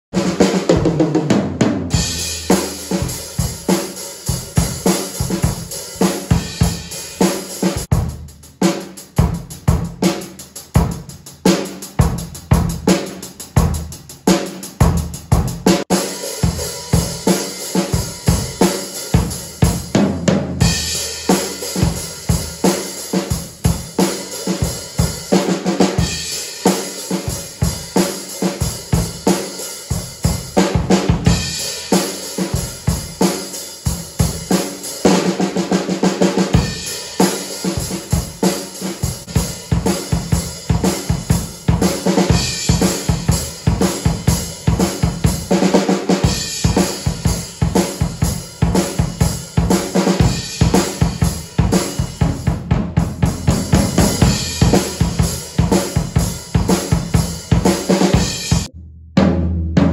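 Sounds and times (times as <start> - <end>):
drum kit groove: 0.1 - 59.9.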